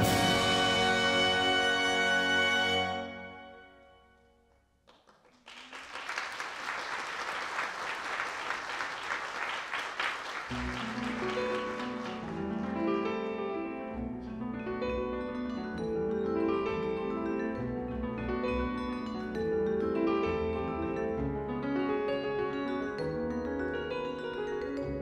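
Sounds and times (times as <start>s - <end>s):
audience applauding: 4.8s - 12.6s.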